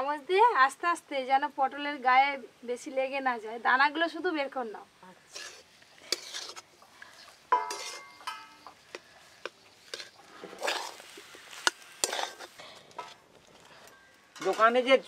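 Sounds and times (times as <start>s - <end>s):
spatula stirring in metal pan: 5.2s - 14.8s
spoon scraping seeds: 5.3s - 13.9s.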